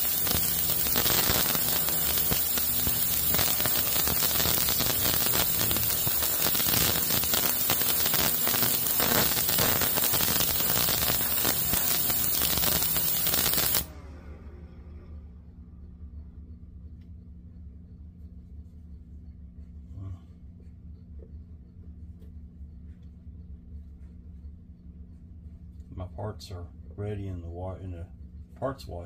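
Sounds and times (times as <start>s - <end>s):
ultrasonic cleaner hissing: 0.0s - 14.0s
low electrical hum: 0.0s - 29.0s.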